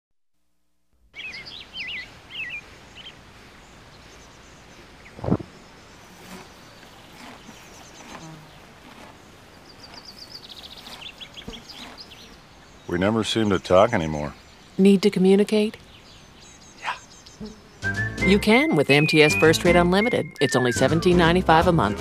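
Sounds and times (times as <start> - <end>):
songbird calls warbling: 1.2 - 3.2, 9.5 - 20.8.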